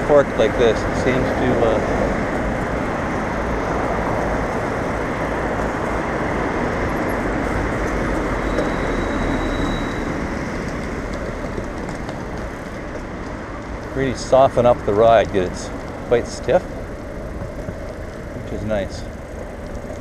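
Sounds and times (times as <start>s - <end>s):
bicycle tyres on wet tarmac: 0.0s - 20.0s
city traffic: 0.0s - 20.0s.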